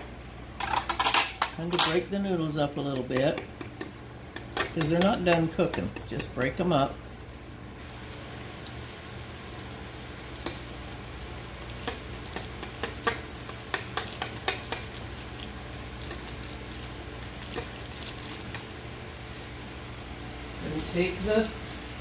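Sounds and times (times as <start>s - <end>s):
fork stirring noodles in broth: 7.8s - 18.9s.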